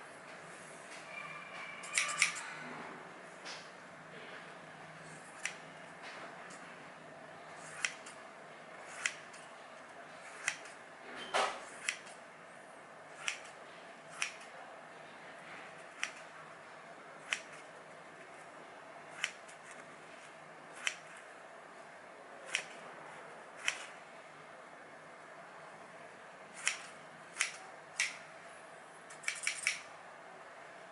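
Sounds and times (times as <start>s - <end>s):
shears snipping paper: 13.2s - 14.5s, 22.5s - 22.8s.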